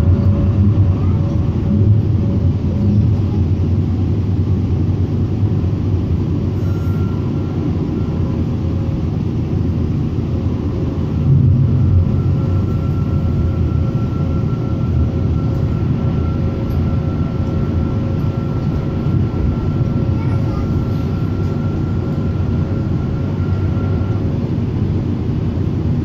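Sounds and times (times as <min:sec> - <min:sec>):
light rail car rumble: 0:00.0 - 0:26.0
faint high whine: 0:05.7 - 0:26.0.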